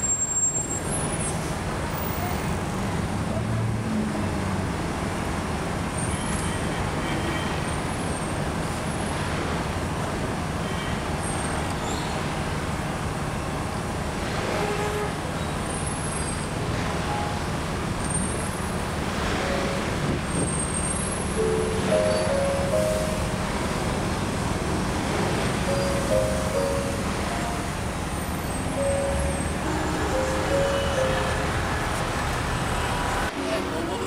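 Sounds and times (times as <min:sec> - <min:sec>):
city traffic rumble: 0:00.0 - 0:34.0.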